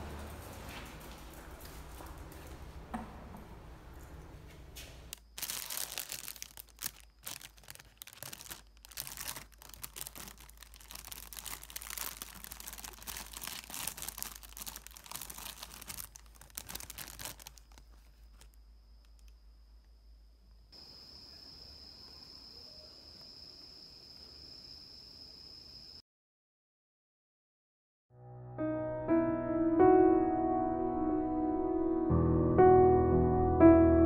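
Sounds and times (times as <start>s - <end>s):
plastic bag crinkling: 5.1s - 19.3s.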